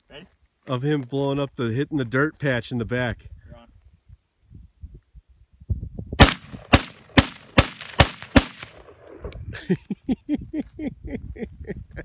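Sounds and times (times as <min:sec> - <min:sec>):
rifle shots with echo: 0:06.2 - 0:09.4.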